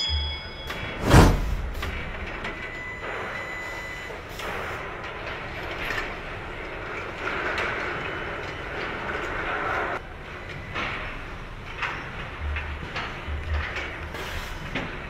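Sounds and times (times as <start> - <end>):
machinery rumble and hiss: 1.0 - 15.0.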